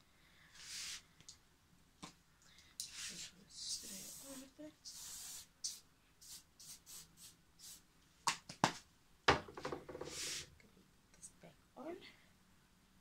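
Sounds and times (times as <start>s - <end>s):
hairspray hissing puffs: 2.9s - 7.8s.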